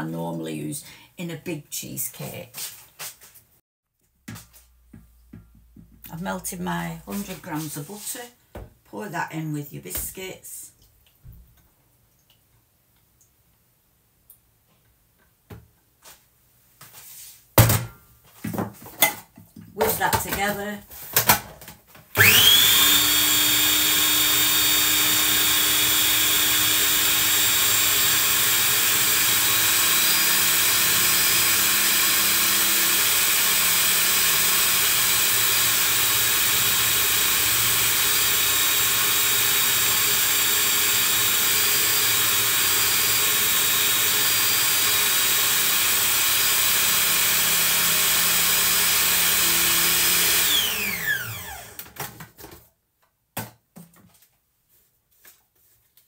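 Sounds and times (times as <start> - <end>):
food processor motor whining: 22.2 - 52.0.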